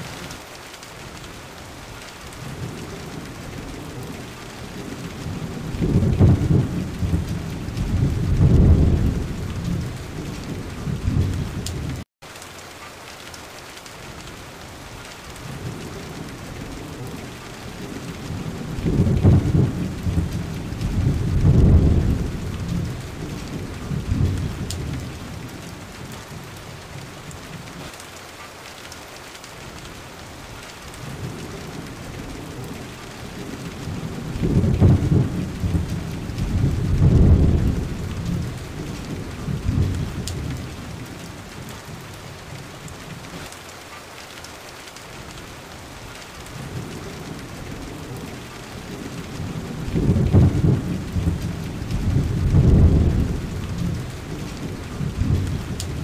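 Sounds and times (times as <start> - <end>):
steady rain: 0.0 - 56.0
low thunder rolling: 2.4 - 12.0, 15.4 - 27.6, 31.0 - 43.3, 46.5 - 56.0.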